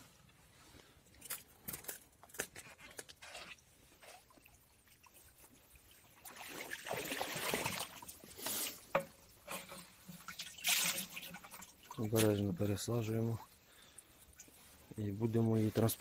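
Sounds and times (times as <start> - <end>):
landing net splashing in water: 4.1 - 12.4.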